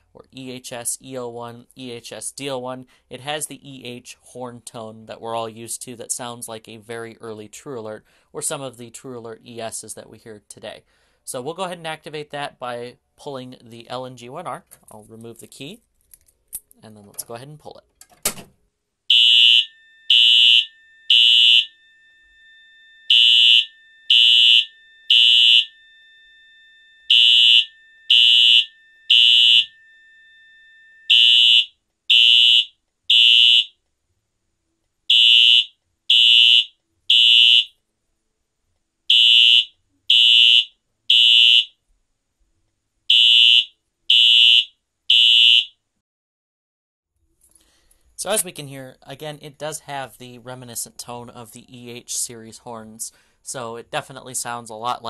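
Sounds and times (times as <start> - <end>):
fire alarm horn blasts: 19.1 - 33.8, 35.1 - 37.7, 39.1 - 41.7, 43.1 - 45.8.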